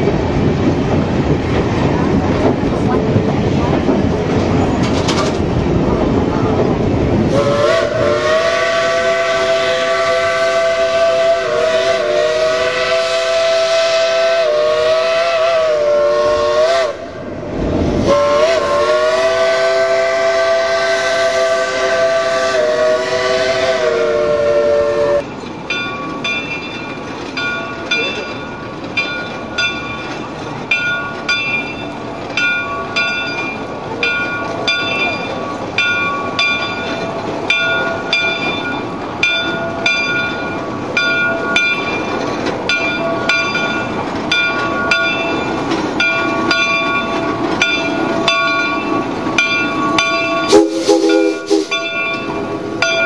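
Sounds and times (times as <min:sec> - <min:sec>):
low steam locomotive noise: 0:00.0 - 0:53.0
steam locomotive whistle: 0:07.3 - 0:17.1, 0:18.0 - 0:25.3, 0:49.8 - 0:53.0
locomotive bell ringing: 0:25.2 - 0:53.0.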